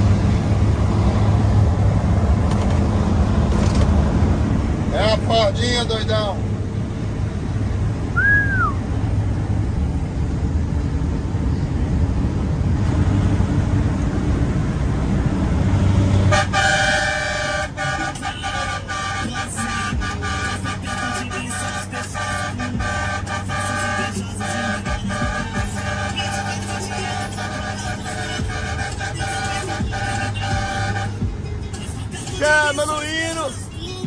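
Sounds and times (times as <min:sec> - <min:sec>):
truck engine and road rumble: 0:00.0 - 0:34.0
short whistle: 0:08.2 - 0:08.8
truck air horn blasts: 0:16.2 - 0:31.3.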